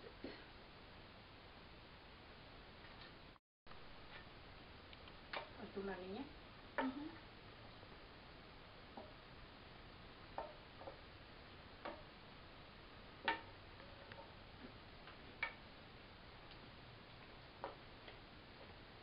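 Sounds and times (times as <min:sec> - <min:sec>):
knife tapping and scraping metal skillet: 0:11.8 - 0:12.1.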